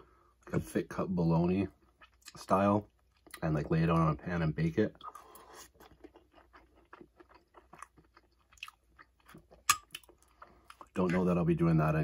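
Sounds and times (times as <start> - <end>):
close-miked chewing: 4.9 - 11.3.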